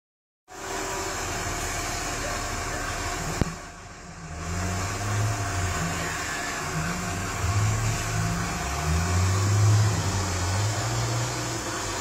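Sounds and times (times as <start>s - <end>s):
robot vacuum cleaner whirring: 4.6s - 12.0s.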